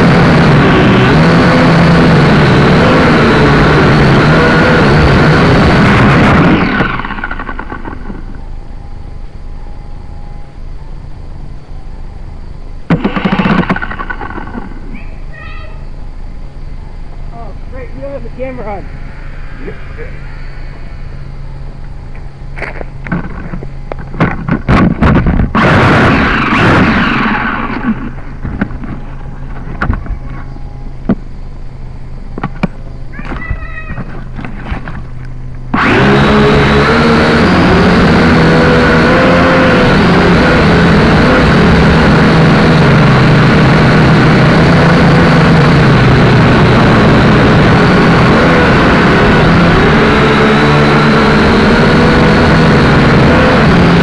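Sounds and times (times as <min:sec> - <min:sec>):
quad bike engine running: 0:00.0 - 0:08.6, 0:12.9 - 0:15.3, 0:22.1 - 0:31.3, 0:32.3 - 0:54.0
steady low hum: 0:00.0 - 0:54.0
camera rustling against dirt: 0:34.0 - 0:35.3.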